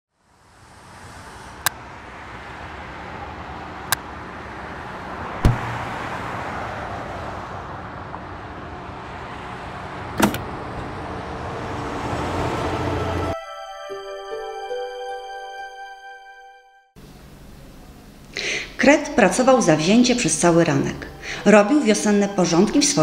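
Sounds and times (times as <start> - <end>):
low thud: 5.4 - 5.9.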